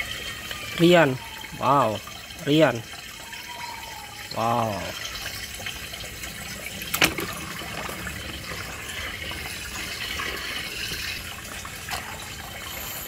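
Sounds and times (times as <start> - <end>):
toy car splashing into water: 6.8 - 11.2.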